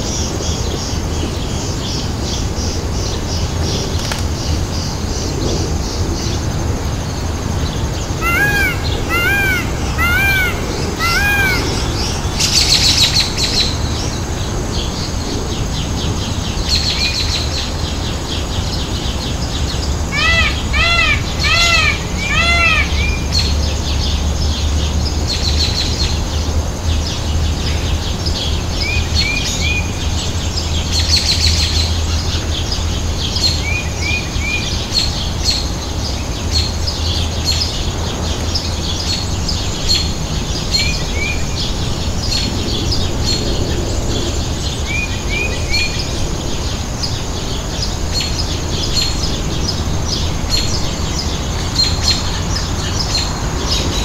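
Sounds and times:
steady low hum: 0.0 - 31.1
birds chirping and twittering: 0.0 - 54.0.

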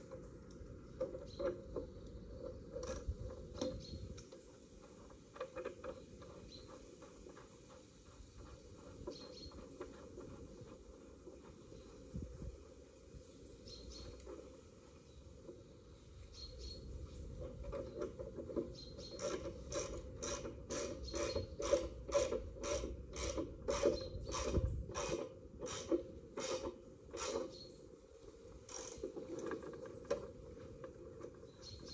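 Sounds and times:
hand ratchet clicking: 19.1 - 27.6, 28.7 - 29.6.

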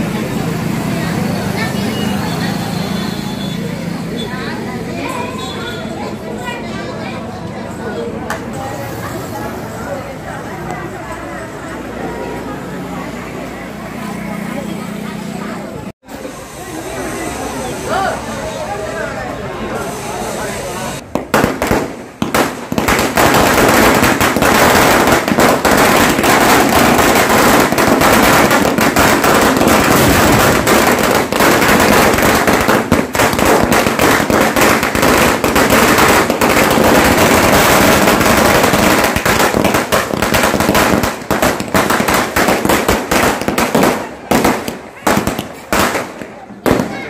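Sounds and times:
firecrackers crackling: 19.8 - 47.0.

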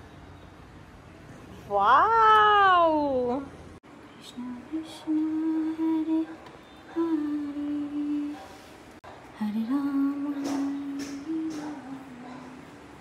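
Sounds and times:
person humming a slow tune: 6.9 - 8.4, 9.4 - 12.9.

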